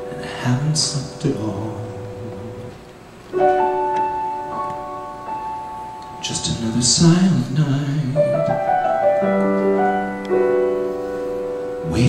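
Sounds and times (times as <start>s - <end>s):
grand piano chords: 0.0s - 12.0s
man singing ballad: 0.1s - 2.8s, 6.2s - 8.5s.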